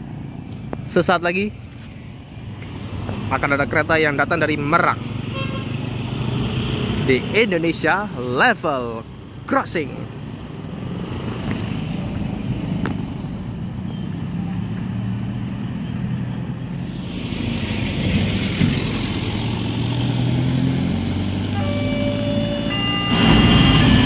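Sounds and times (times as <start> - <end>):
road traffic passing: 0.0 - 24.0.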